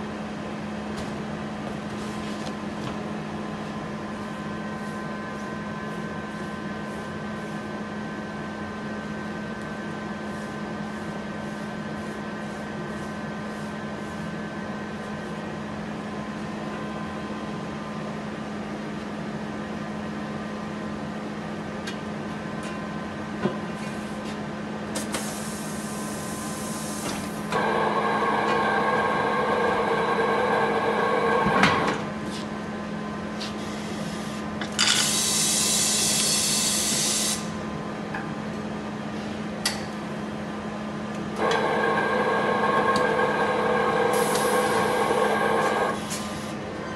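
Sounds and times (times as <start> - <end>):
workshop hum: 0.2 - 19.1, 20.5 - 46.9
turntable motor running: 41.4 - 46.0.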